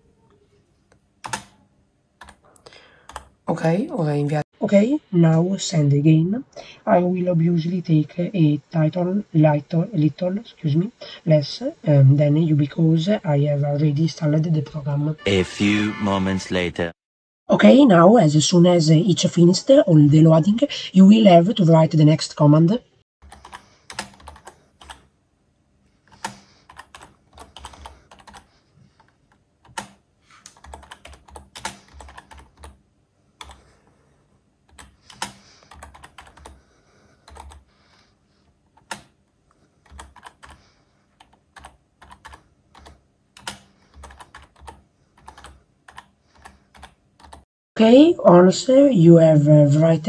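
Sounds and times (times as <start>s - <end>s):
typing on computer keyboard: 1.2s - 1.6s, 3.0s - 3.3s, 23.3s - 25.0s, 26.1s - 32.8s, 34.7s - 36.6s, 37.2s - 37.6s, 39.8s - 40.6s, 41.2s - 47.5s.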